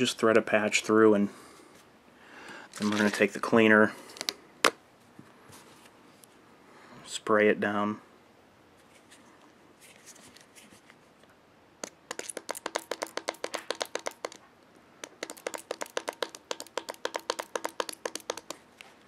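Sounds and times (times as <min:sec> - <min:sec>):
spray bottle spraying: 0:11.8 - 0:14.4, 0:15.0 - 0:18.6.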